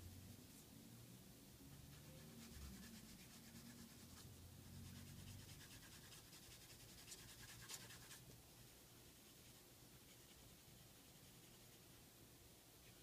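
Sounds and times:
pencil scratching on paper: 1.7s - 8.2s.

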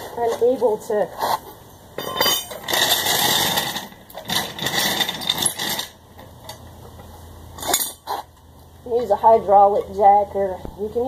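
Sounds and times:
metal tools clattering: 2.0s - 6.7s, 7.6s - 8.2s
tool handling noise: 2.0s - 9.9s.

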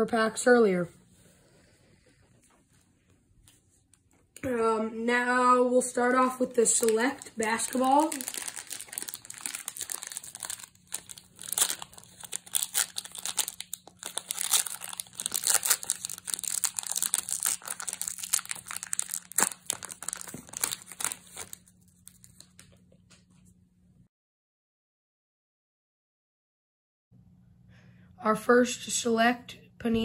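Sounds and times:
foil wrapper crinkling and tearing: 6.5s - 22.7s.

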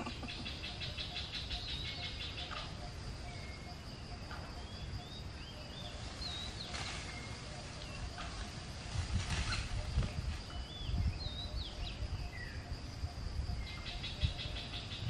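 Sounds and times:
fast pulsing insect trill: 0.0s - 15.0s
insect chirps: 0.0s - 15.0s
rustling crackles: 5.9s - 10.6s.

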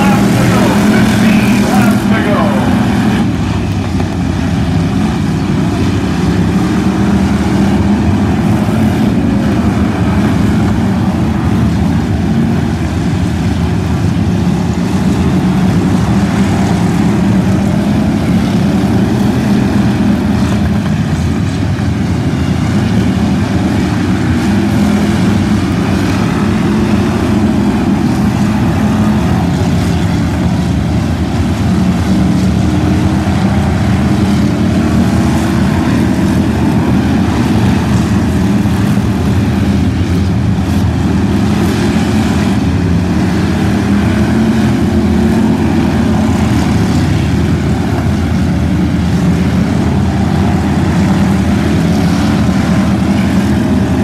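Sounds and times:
race car engines droning: 0.0s - 54.0s.

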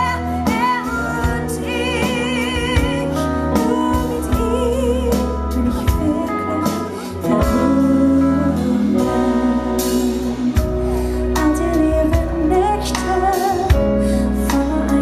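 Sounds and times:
band playing slow ballad: 0.0s - 15.0s
electric guitar melody: 0.0s - 15.0s.

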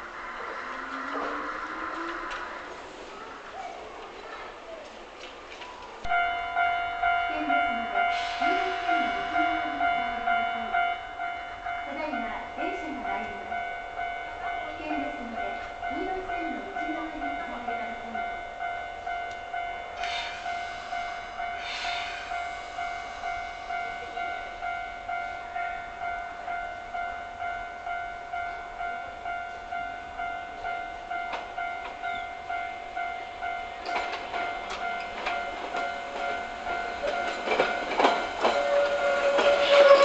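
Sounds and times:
level crossing bell ringing: 6.1s - 40.0s
train wheels clattering over rail joints: 33.8s - 40.0s.

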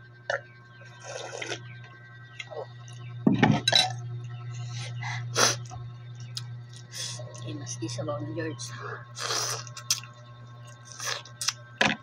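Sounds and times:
soup slurping: 1.0s - 1.6s, 9.2s - 10.1s
mouth and eating noises: 9.2s - 11.6s.

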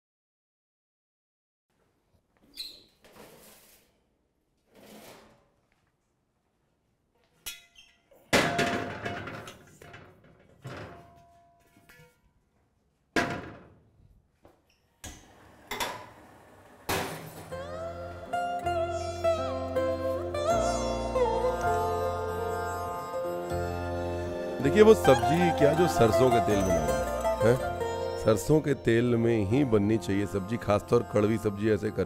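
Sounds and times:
metal pot thunks and clangs: 7.5s - 12.2s, 13.2s - 13.7s.

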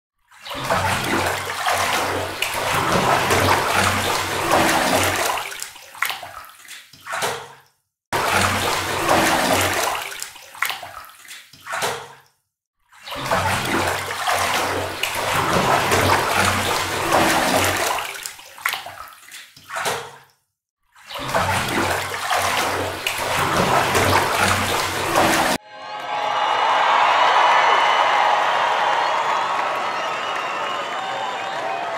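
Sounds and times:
rushing splashing water: 0.4s - 6.8s, 8.2s - 11.4s, 13.0s - 20.0s, 21.1s - 25.6s.

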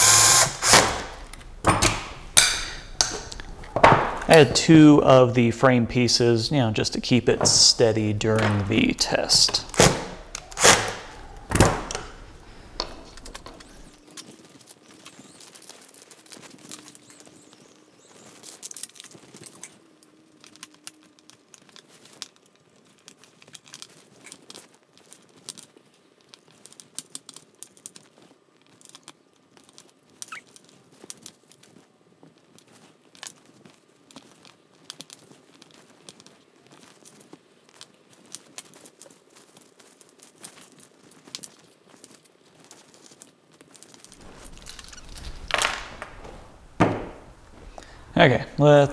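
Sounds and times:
wires and plugs clicking: 0.0s - 17.6s, 44.0s - 48.9s.

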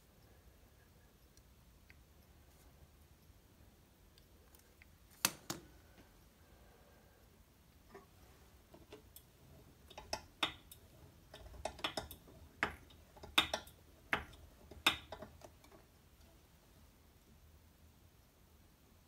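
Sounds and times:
sharp clicks and light knocks: 7.8s - 16.4s.

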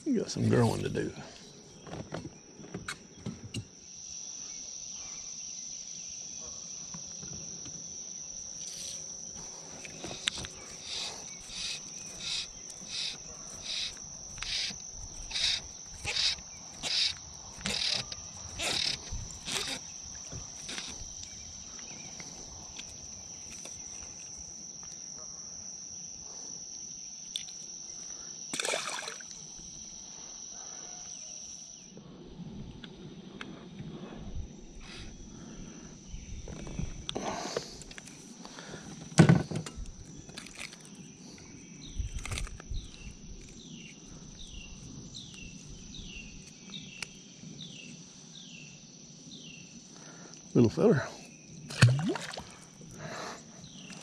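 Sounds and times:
insects buzzing: 0.0s - 54.0s
rasping pulses: 10.1s - 21.1s.

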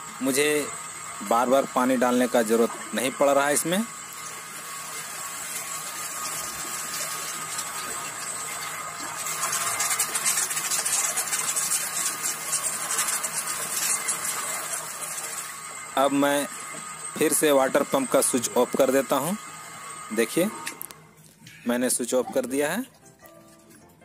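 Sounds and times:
water pump whining: 0.0s - 24.0s
water splashing into bucket: 5.4s - 15.6s.

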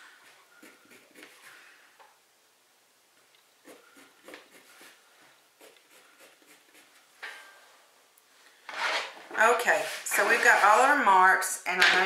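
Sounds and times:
pencil scratching on fabric: 0.2s - 1.6s, 3.6s - 5.0s, 5.6s - 7.1s.

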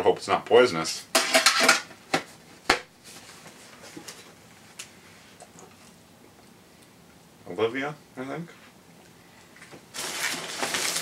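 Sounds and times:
food item being unwrapped: 9.9s - 11.0s.

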